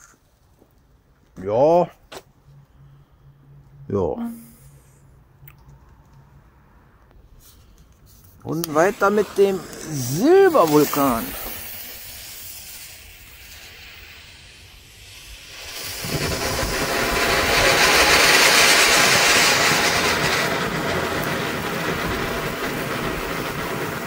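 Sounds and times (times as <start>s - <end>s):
firework fountain hissing: 7.2s - 24.0s.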